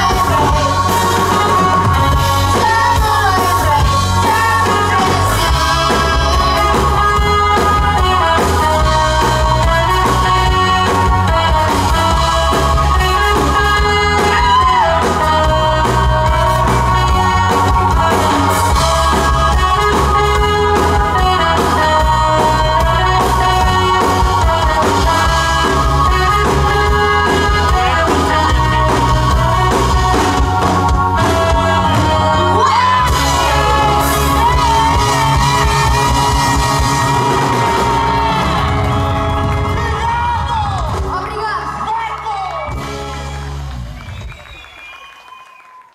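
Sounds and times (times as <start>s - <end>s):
bass guitar: 0.0s - 45.0s
live band playing: 0.0s - 45.9s
people singing: 2.3s - 38.9s.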